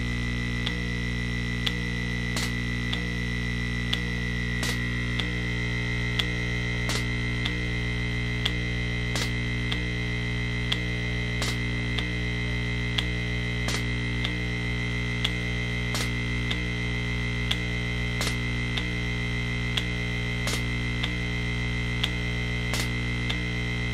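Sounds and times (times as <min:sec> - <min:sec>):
valves clicking: 0:01.6 - 0:03.2, 0:03.8 - 0:23.9
pneumatic drive humming: 0:02.4 - 0:03.1, 0:03.9 - 0:16.7, 0:17.4 - 0:19.0, 0:19.6 - 0:21.3, 0:22.0 - 0:23.9.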